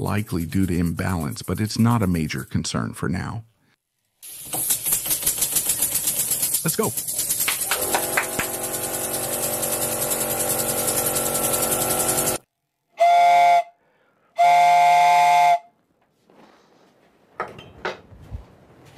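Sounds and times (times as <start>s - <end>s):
train-style whistle blasts: 13.0s - 15.7s.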